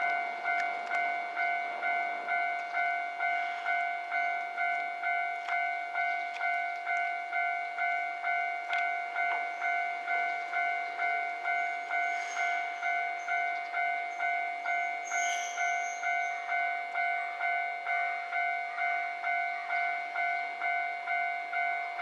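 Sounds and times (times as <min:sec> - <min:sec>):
level crossing warning bell ringing: 0:00.0 - 0:22.0
train passing: 0:00.0 - 0:22.0
faint high squeal: 0:14.1 - 0:16.5.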